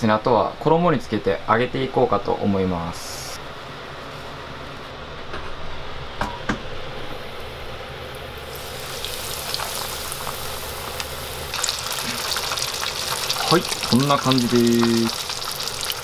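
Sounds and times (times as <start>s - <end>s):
food deep-frying in hot oil: 7.0s - 16.0s.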